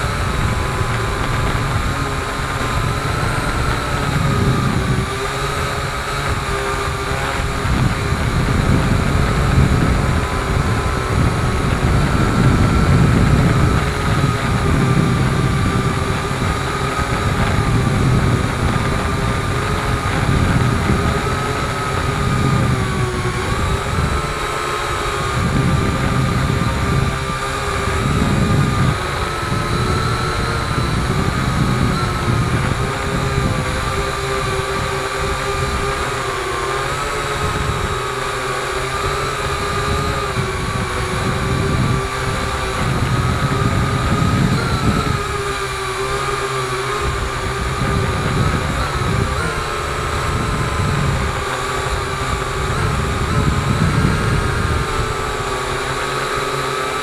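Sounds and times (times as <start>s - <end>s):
drone motors whining: 0.0s - 57.0s
prop wash buffeting microphone: 0.0s - 57.0s.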